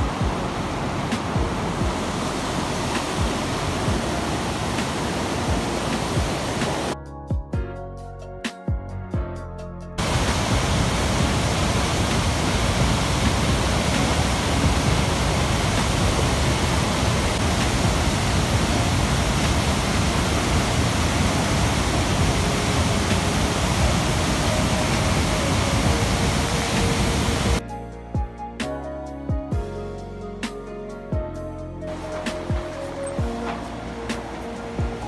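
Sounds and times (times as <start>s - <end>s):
waterfall rushing: 0.0s - 7.0s, 10.0s - 27.6s, 31.9s - 35.0s
music: 0.0s - 35.0s.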